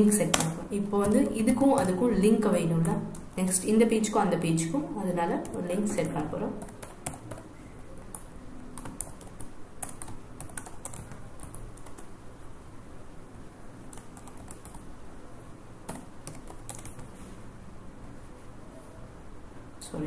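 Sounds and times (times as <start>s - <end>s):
typing on computer keyboard: 5.4s - 12.1s, 13.9s - 14.9s, 15.9s - 17.1s.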